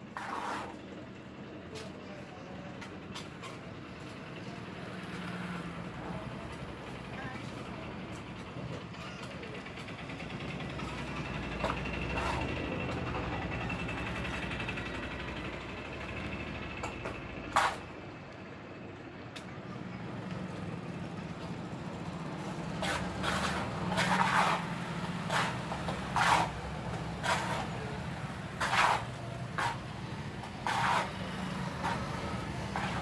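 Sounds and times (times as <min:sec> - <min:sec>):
wet cement scraping and squelching: 0:00.1 - 0:00.8, 0:22.7 - 0:33.0.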